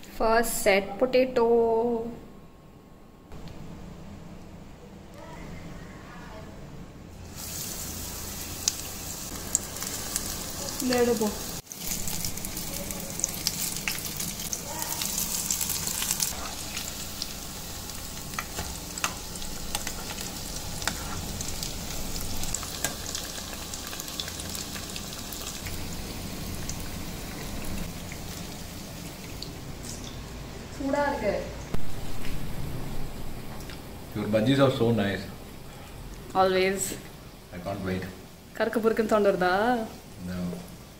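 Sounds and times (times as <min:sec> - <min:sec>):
food deep-frying in oil: 0:07.2 - 0:31.1.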